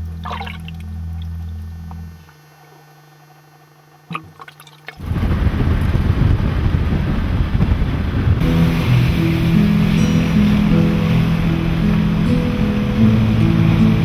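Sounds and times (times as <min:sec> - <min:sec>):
faint steady hum: 0:00.0 - 0:14.0
wind and road noise in vehicle: 0:05.0 - 0:14.0.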